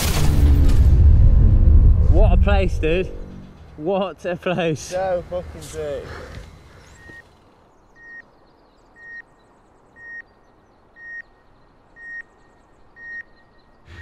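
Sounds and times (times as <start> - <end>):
faint high twittering: 4.9 - 14.0
high electronic beeps: 10.0 - 10.3, 12.0 - 12.4.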